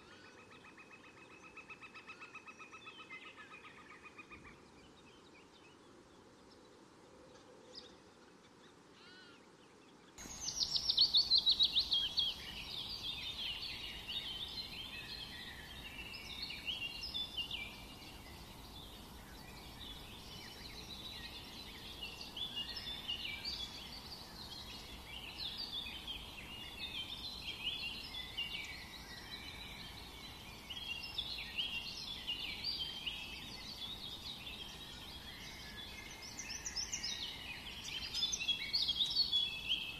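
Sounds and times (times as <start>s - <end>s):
small birds chirping and twittering: 0.0s - 39.9s.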